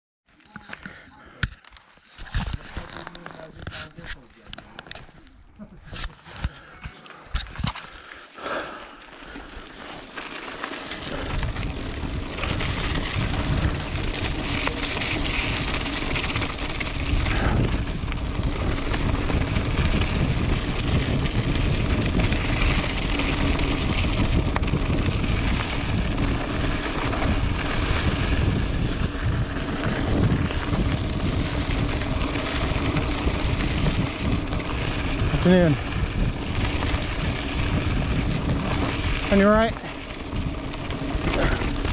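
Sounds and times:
bike tyres rolling on dirt: 2.0 - 5.4, 6.2 - 41.9
wind buffeting microphone: 11.1 - 41.9.

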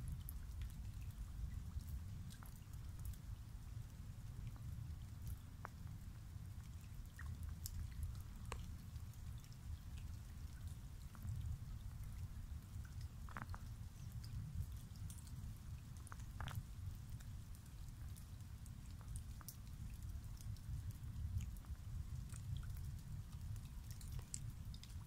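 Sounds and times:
raindrops pattering on water: 0.0 - 25.0.

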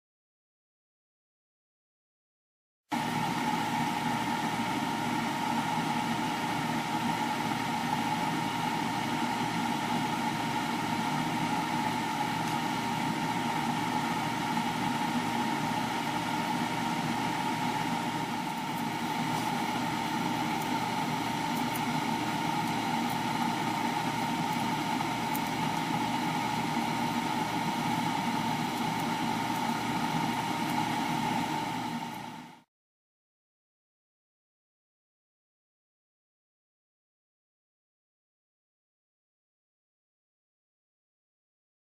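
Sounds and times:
grill humming and hissing: 2.9 - 32.7.

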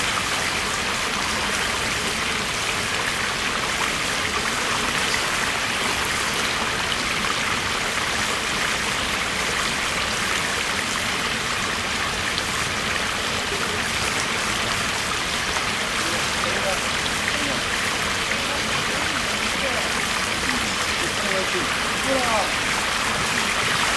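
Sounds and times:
river water rushing over gravel: 0.0 - 23.9.

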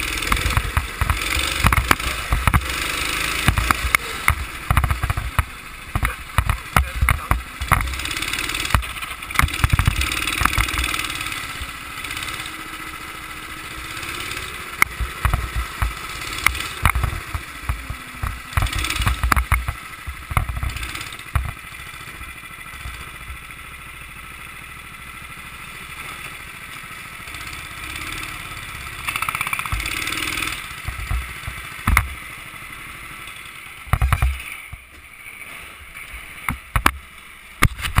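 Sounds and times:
go-kart engine running: 0.0 - 38.0
short thumps and knocks: 3.4 - 7.9.

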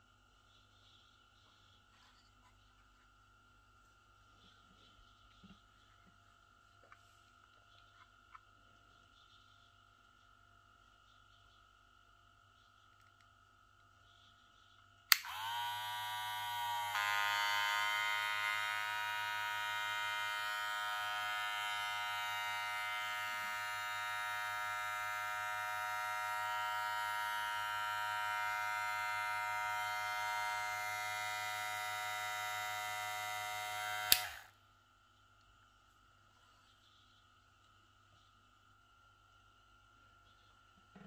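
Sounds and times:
hair clipper motor whining: 15.1 - 34.6.

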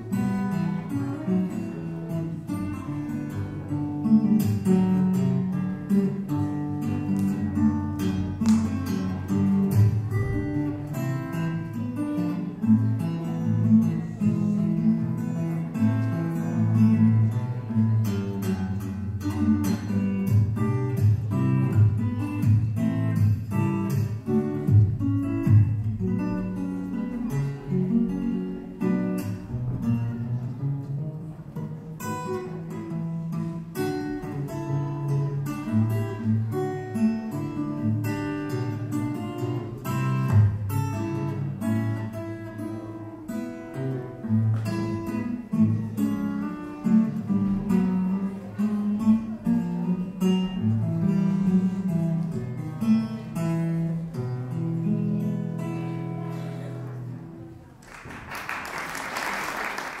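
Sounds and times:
plucked acoustic guitar: 0.0 - 57.8
applause: 57.8 - 60.0.

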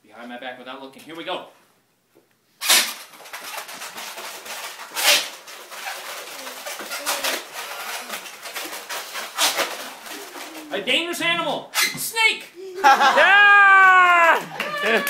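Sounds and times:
balloon squeaking and rubbing: 2.6 - 12.2.

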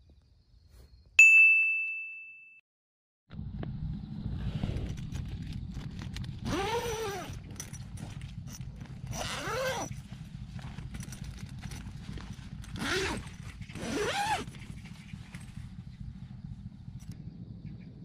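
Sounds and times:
steady low rumble: 3.3 - 6.5, 7.2 - 18.0.

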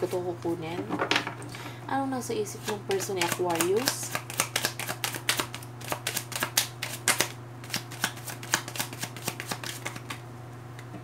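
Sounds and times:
cards being shuffled: 2.6 - 10.2.

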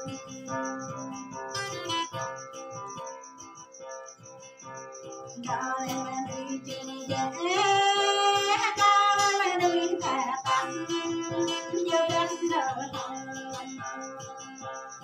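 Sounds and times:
strummed acoustic guitar: 0.0 - 15.0
woman singing folk song: 5.3 - 14.7.

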